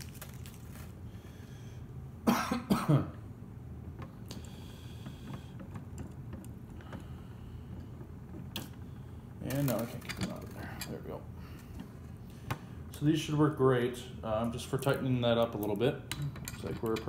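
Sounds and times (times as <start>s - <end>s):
man coughing: 2.2s - 3.2s.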